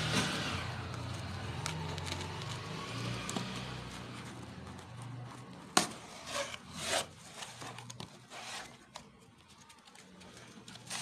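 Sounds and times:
cardboard rubbing and scraping: 5.8 - 9.1.

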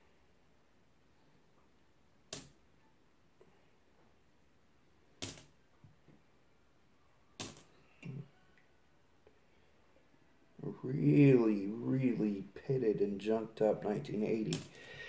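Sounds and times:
coins clicking on a pile: 7.4 - 7.7.

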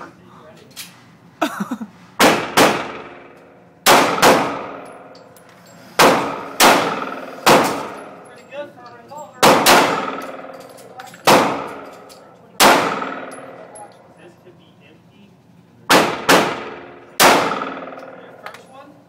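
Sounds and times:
pistol shots with ringing echo: 2.2 - 5.2, 6.0 - 8.3, 9.4 - 13.9, 15.9 - 18.5.

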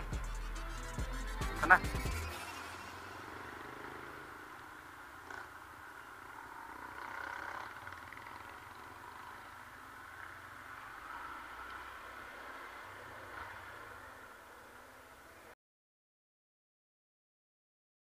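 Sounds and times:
muffled motorcycle engine: 1.6 - 15.0
wind and road noise: 2.3 - 15.6.

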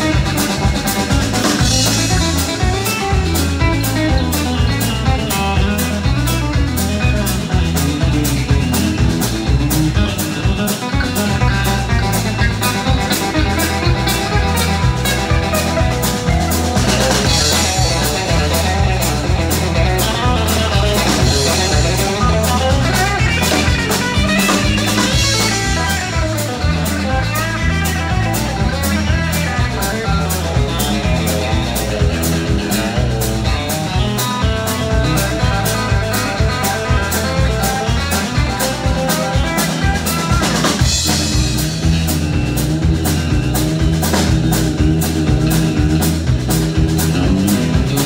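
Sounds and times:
drum kit steady beat: 0.0 - 48.0
electric guitars: 0.0 - 48.0.

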